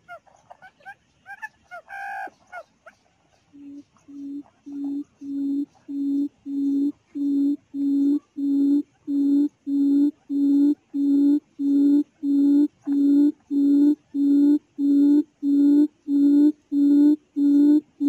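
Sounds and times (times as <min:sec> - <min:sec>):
quail hooting calls: 0:00.0 - 0:07.2.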